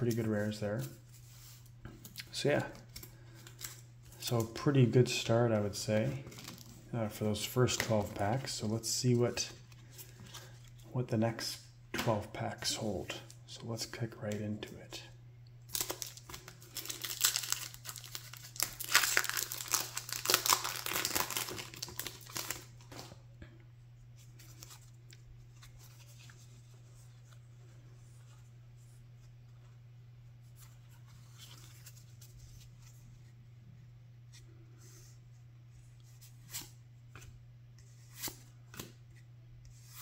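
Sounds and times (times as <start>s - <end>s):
wrapper tearing and crinkling: 15.7s - 22.7s.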